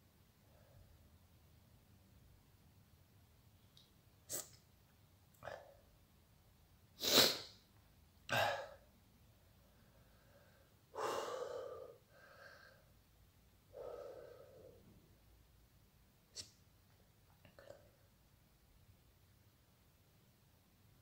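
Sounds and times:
man breathing hard through mouth: 0:09.9 - 0:12.9.

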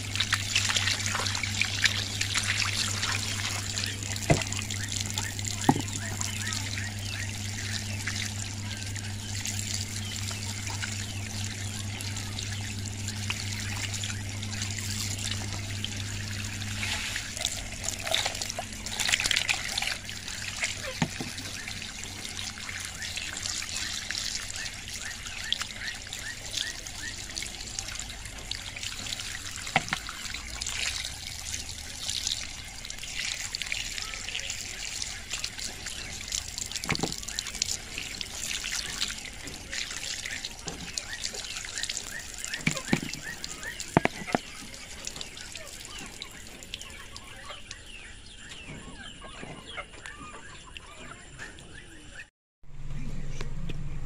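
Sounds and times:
water pouring onto stones: 0:00.0 - 0:47.8
steady low hum: 0:00.0 - 0:49.0.

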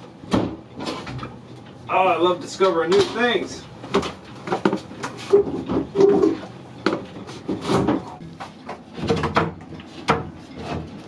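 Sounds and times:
hollow knocks on wooden boards: 0:09.0 - 0:10.3.

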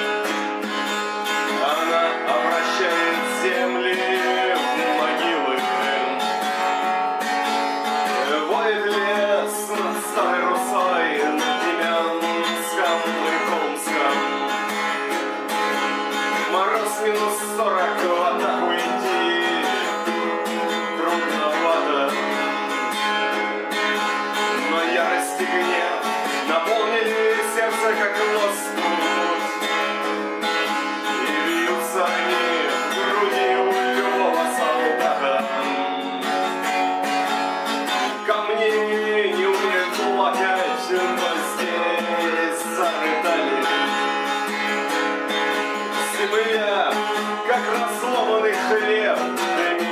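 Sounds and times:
strummed acoustic guitar: 0:00.0 - 0:49.9.

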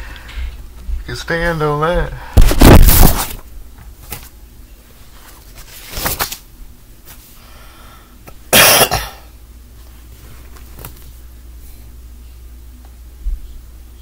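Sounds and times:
man coughing: 0:08.5 - 0:09.3.

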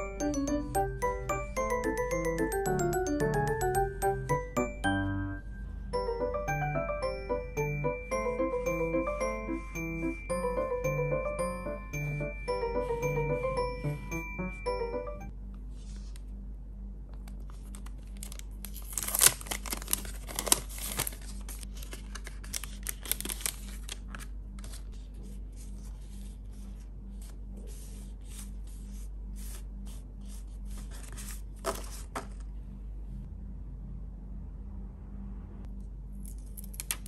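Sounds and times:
plastic stickers crinkling: 0:17.3 - 0:25.0.

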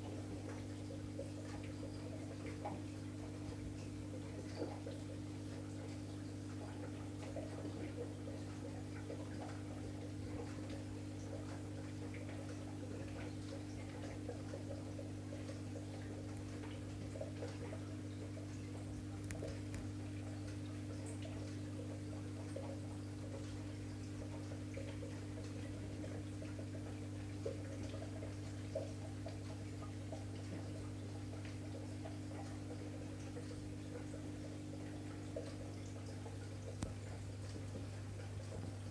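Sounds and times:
aquarium equipment humming: 0:00.0 - 0:38.9
faint irregular ticks: 0:00.5 - 0:30.8.

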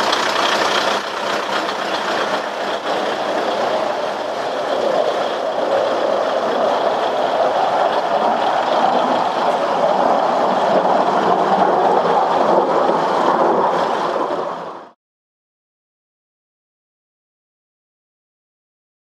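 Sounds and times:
diesel railcar engines idling: 0:00.0 - 0:14.1.

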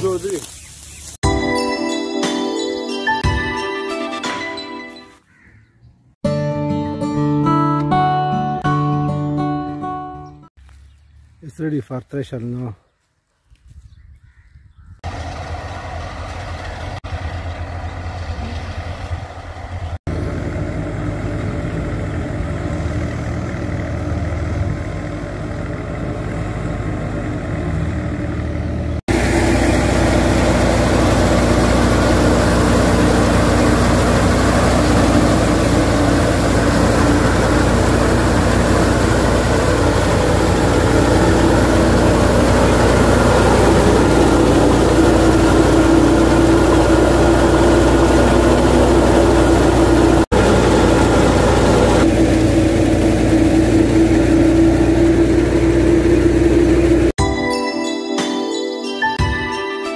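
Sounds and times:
tractor engine running: 0:15.0 - 0:57.2.

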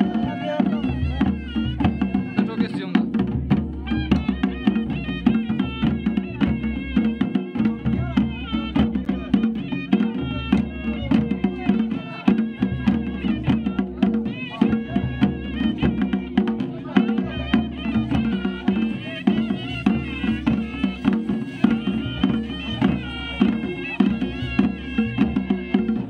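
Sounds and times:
reedy wind instrument melody: 0:00.0 - 0:03.0, 0:03.7 - 0:26.0
steady drumming: 0:00.0 - 0:26.0.

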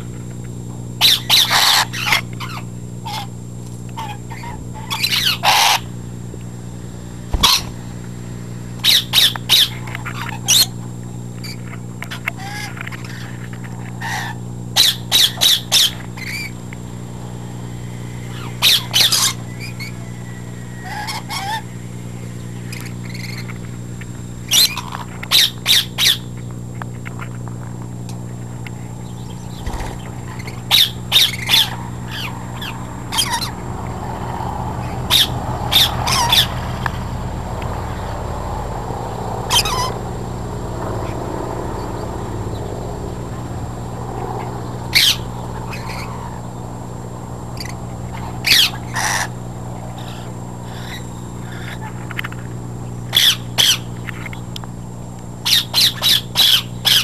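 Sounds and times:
steady low hum: 0:00.0 - 0:57.0
parrots squawking: 0:01.0 - 0:03.4, 0:04.0 - 0:06.0, 0:07.3 - 0:07.9, 0:08.8 - 0:10.8, 0:11.4 - 0:16.6, 0:17.3 - 0:23.7, 0:24.4 - 0:26.3, 0:29.1 - 0:36.8, 0:39.4 - 0:40.1, 0:42.5 - 0:46.6, 0:47.5 - 0:52.4, 0:53.1 - 0:54.4, 0:55.4 - 0:57.0.

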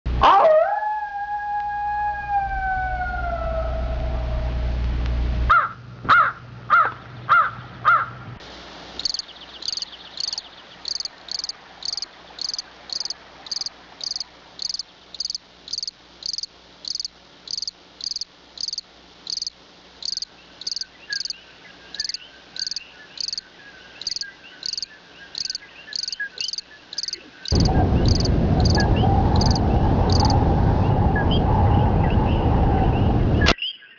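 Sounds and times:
animal howl: 0:00.2 - 0:04.8, 0:27.5 - 0:33.3
cricket chirping: 0:09.0 - 0:30.5
loud rushing noise: 0:27.5 - 0:33.5.

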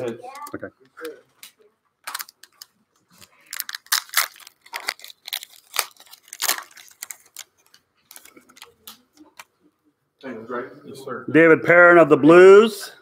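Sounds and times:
foil wrapper tearing and crinkling: 0:02.0 - 0:08.7.

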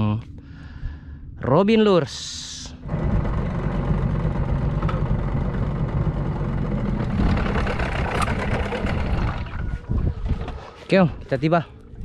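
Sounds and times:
boat engine running: 0:02.8 - 0:10.8.

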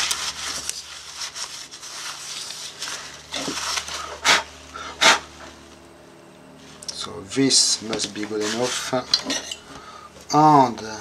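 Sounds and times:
cloth rubbing on glass and metal: 0:00.0 - 0:04.1, 0:08.2 - 0:09.1.

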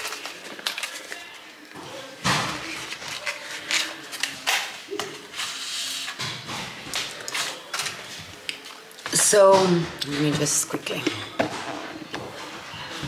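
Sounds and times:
plastic rustling: 0:00.0 - 0:09.4.

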